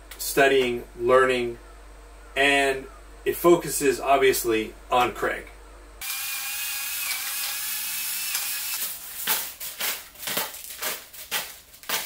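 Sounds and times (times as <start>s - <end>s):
pepper mill grinding: 7.1s - 12.0s.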